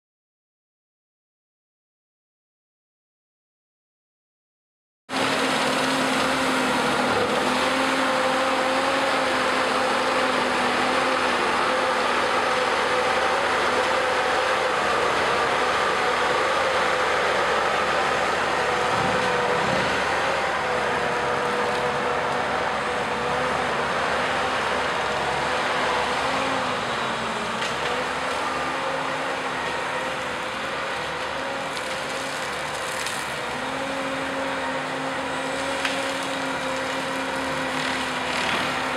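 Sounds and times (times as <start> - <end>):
track loader with brush cutter: 5.1 - 38.9.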